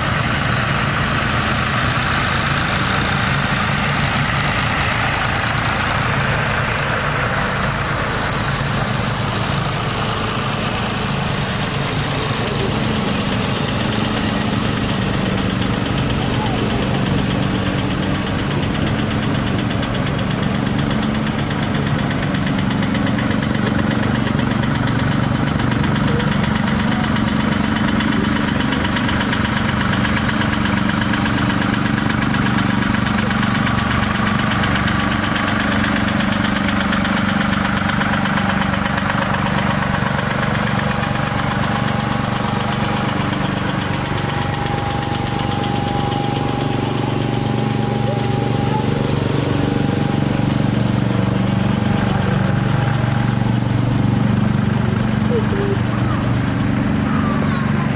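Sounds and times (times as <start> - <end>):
tractor engine running: 0.0 - 57.9.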